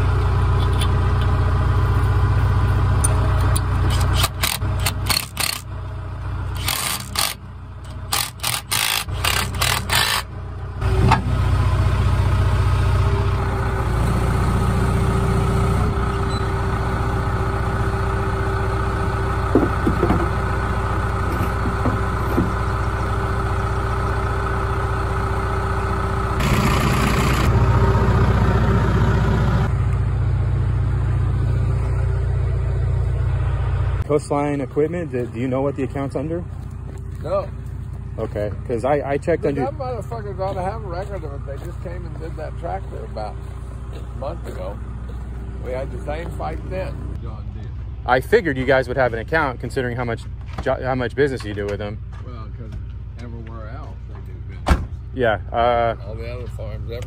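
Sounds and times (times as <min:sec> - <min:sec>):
tractor engine low rumble: 0:00.0 - 0:57.0
knocks and rattles: 0:19.5 - 0:20.4.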